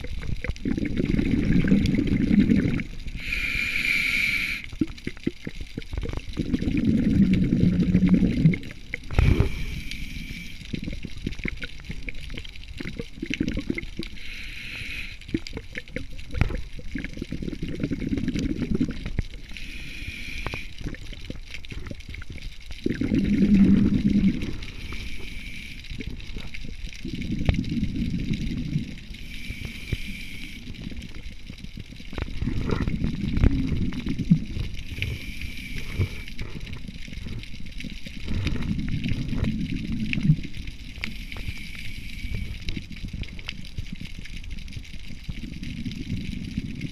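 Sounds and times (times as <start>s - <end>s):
exhaled bubbles rushing: 0.0s - 3.3s, 4.6s - 14.2s, 15.0s - 46.9s
small underwater clicks: 0.0s - 46.9s
regulator inhale hiss: 3.1s - 4.8s, 9.1s - 10.8s, 14.0s - 15.5s, 19.4s - 21.0s, 24.0s - 26.2s, 29.1s - 31.2s, 34.8s - 36.8s, 41.0s - 43.0s.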